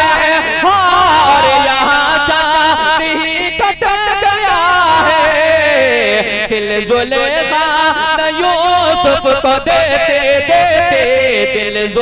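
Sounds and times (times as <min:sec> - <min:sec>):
man singing into microphone: 0:00.0 - 0:12.0.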